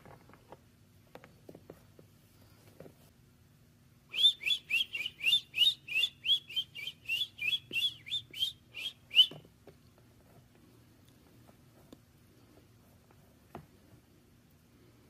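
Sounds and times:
duckling peeping: 4.2 - 9.4.

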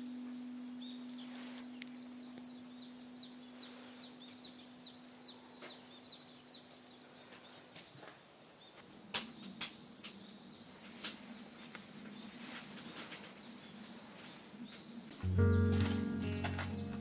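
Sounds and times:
music: 15.2 - 17.0.

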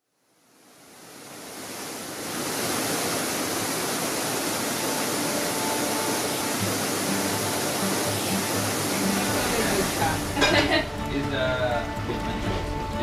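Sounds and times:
waterfall rushing: 0.3 - 13.0
faint musical tones: 4.4 - 13.0.

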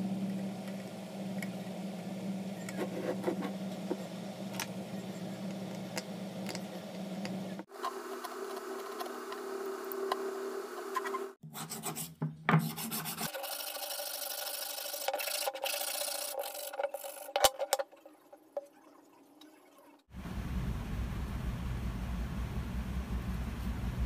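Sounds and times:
stone being sanded by hand: 11.6 - 17.1.

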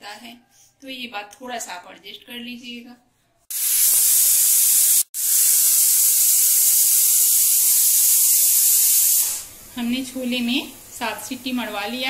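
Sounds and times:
pressure cooker whistle hissing steam: 3.5 - 9.5.

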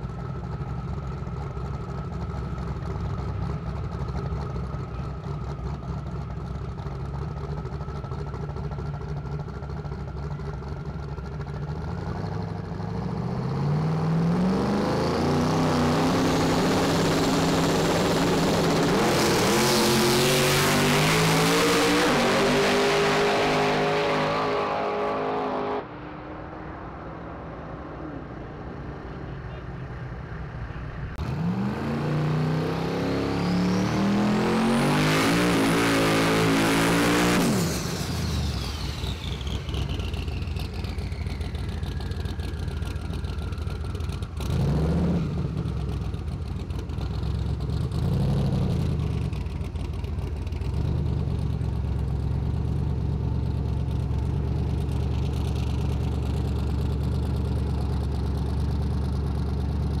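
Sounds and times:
drag racing engine at full throttle: 0.0 - 60.0
pickup truck engine revving: 11.8 - 25.9, 31.2 - 46.4.

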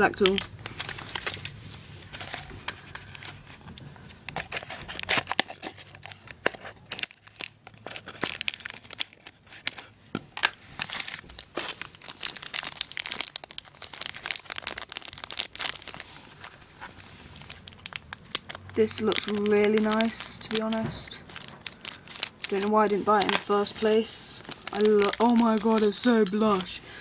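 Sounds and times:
plastic bag crinkling: 0.0 - 3.6, 4.3 - 27.0
cardboard box rustling: 14.0 - 26.8.

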